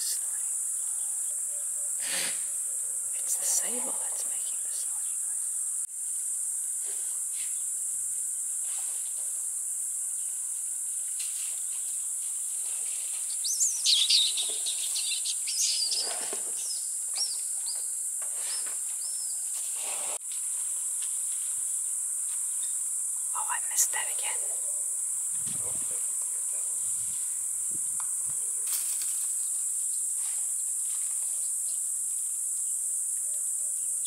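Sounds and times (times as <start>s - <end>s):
high insect drone: 0.0s - 34.0s
birds chirping whistles: 13.4s - 17.9s.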